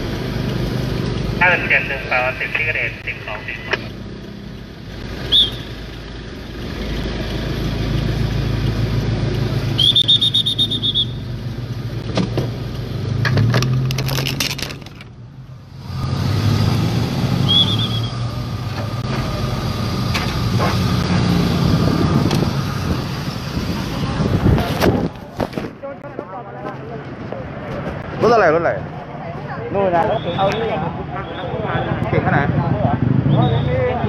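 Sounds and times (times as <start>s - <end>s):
street traffic engines: 0.0s - 34.0s
high whistle blasts: 5.2s - 5.7s, 9.7s - 11.2s, 17.4s - 18.3s, 30.0s - 32.0s, 33.3s - 33.8s.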